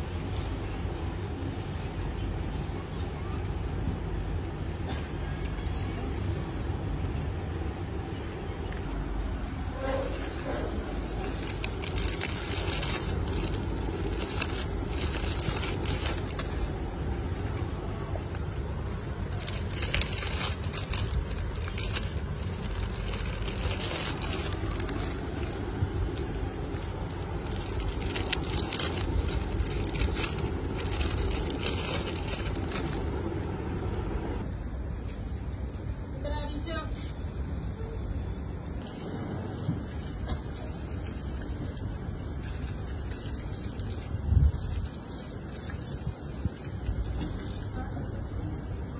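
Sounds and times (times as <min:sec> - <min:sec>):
steady low rumble: 0:00.0 - 0:48.9
plastic bags crinkling: 0:09.9 - 0:34.4.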